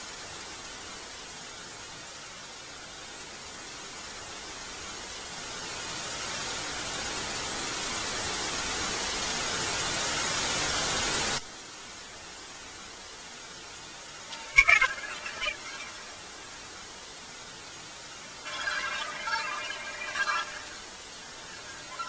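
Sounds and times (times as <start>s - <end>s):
rushing static hiss: 5.4s - 16.9s, 17.6s - 22.0s
thin high whine: 14.1s - 16.8s, 18.1s - 22.0s.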